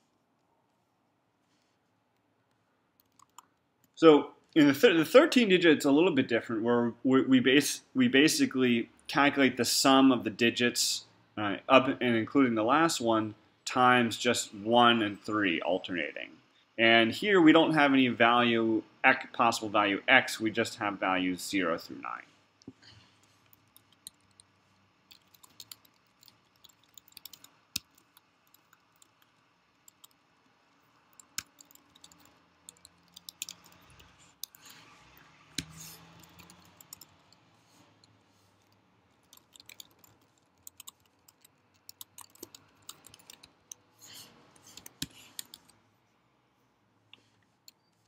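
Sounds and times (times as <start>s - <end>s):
typing on computer keyboard: 3.0s - 3.6s, 23.4s - 24.5s, 25.1s - 34.8s, 35.6s - 37.4s, 38.0s - 43.8s, 44.6s - 45.8s.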